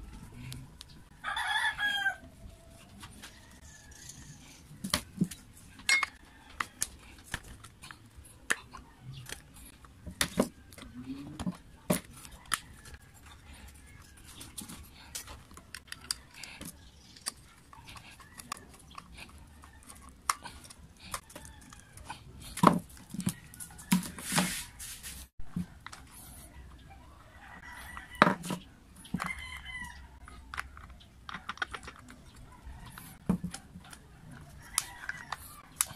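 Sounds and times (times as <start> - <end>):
clicks and knocks of tool handling: 4.8 - 7.8.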